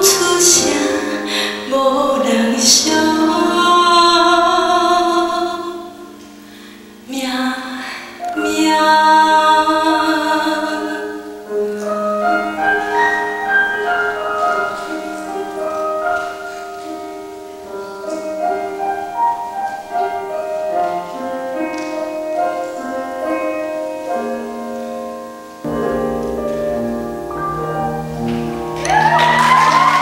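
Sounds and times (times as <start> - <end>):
grand piano playing: 0.0 - 30.0.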